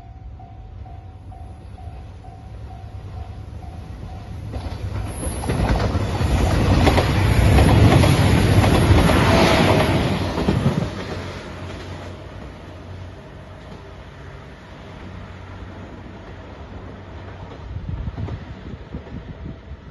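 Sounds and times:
train wheels clattering over rail joints: 4.5 - 12.6.

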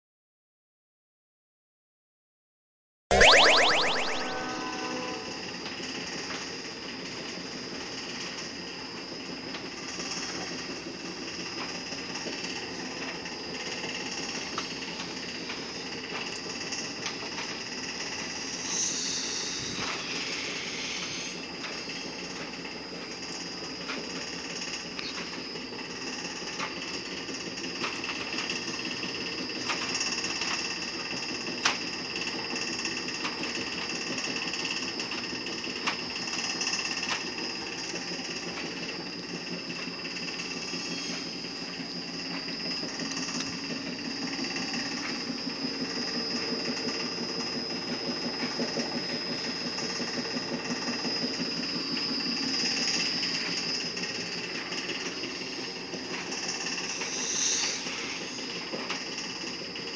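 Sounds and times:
high machine whine: 3.1 - 5.6, 18.2 - 22.3, 39.2 - 59.9.

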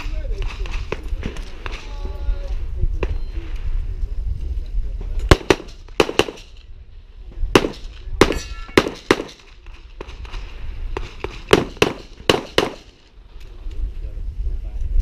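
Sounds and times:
pistol shots with echo: 5.3 - 6.6, 7.5 - 10.4, 11.0 - 13.1.

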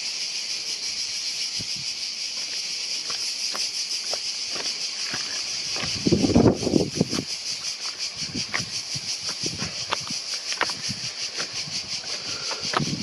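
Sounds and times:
cicadas shrilling: 0.0 - 13.0
footsteps crunching on stones: 1.6 - 13.0.

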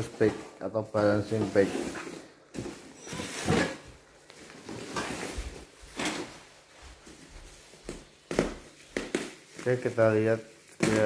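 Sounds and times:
bubble wrap rustling: 0.0 - 11.0
box scraping on tiled floor: 1.3 - 6.6.

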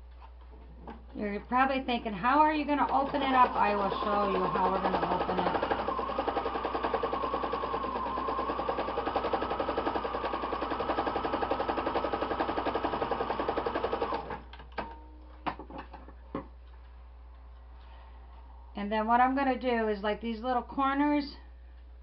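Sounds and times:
sewing machine stitching: 2.7 - 14.4.

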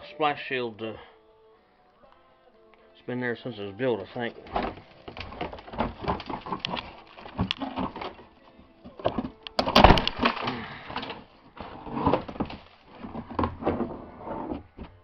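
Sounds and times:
plastic shield knocking and scraping: 4.4 - 8.3, 8.9 - 15.0
debris shaking out: 4.4 - 14.2.

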